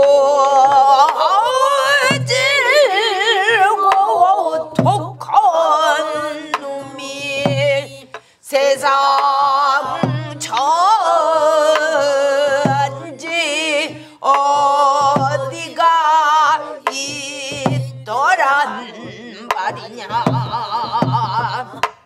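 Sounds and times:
woman singing with vibrato: 0.0 - 22.0
barrel drum strokes: 11.6 - 13.0, 14.3 - 15.8.

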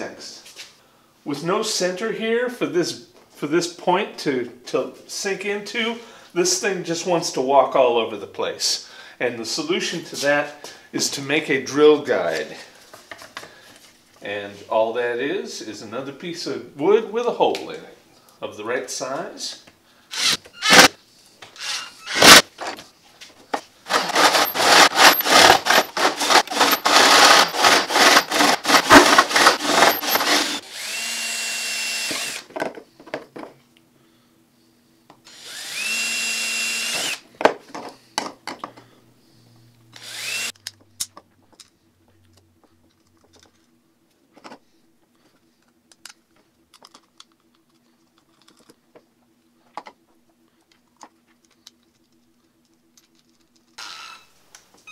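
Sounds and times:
drill boring through plastic pipe: 20.1 - 20.9, 21.6 - 22.4, 23.9 - 32.5, 35.3 - 37.2, 40.0 - 40.6, 53.8 - 54.3
drill driving screws into wood: 20.1 - 21.0, 21.6 - 22.5, 23.9 - 32.5, 35.3 - 37.2, 39.9 - 40.6, 53.8 - 54.9
light clicks of small parts: 45.6 - 48.8.

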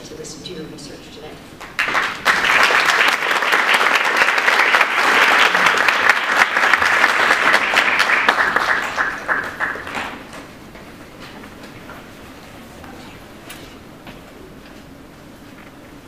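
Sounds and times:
audience applauding: 1.6 - 10.5.

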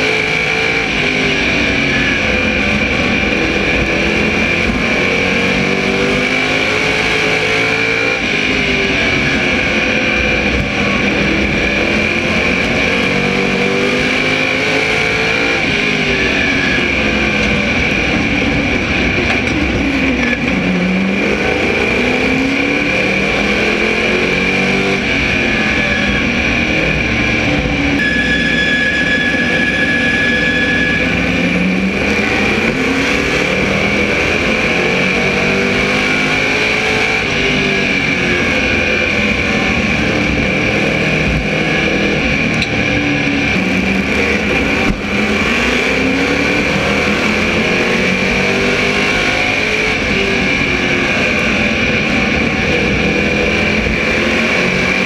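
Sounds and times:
race car engine: 0.0 - 55.0.

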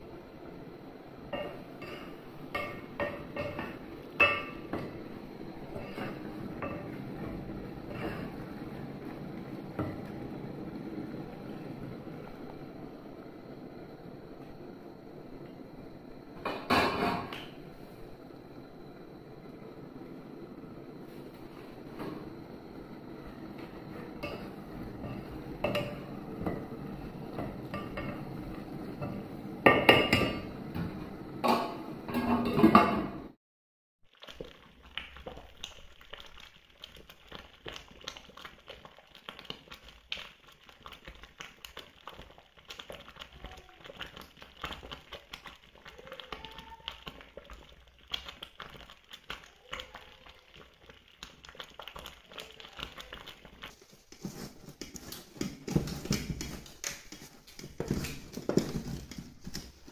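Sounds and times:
water bubbling with fine crackling: 46.8 - 54.1.

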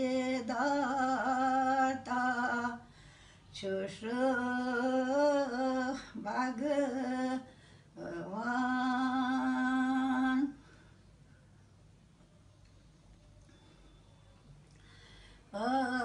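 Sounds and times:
elderly woman singing unaccompanied: 0.0 - 2.9, 3.5 - 10.6, 15.5 - 16.0.

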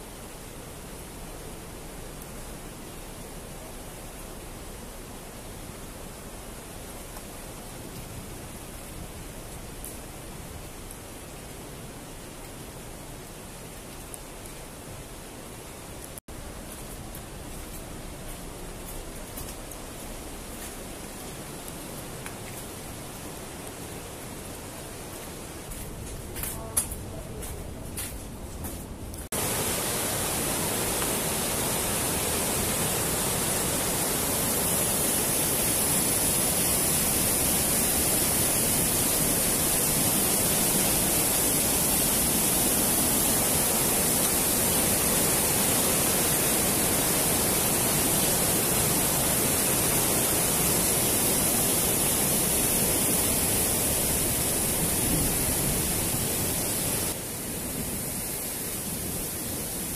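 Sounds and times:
river rapids rushing over boulders: 29.4 - 57.3.

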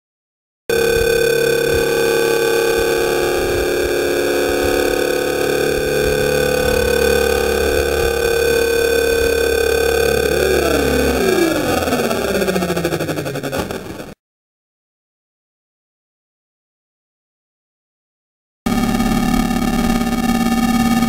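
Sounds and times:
electric motor propeller whine: 0.7 - 14.2, 18.7 - 21.0.

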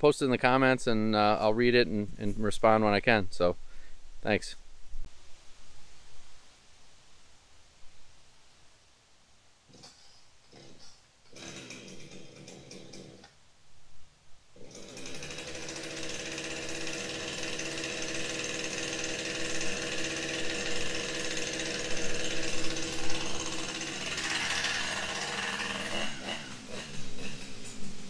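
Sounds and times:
chainsaw starting and running: 9.7 - 13.4, 14.6 - 28.0.

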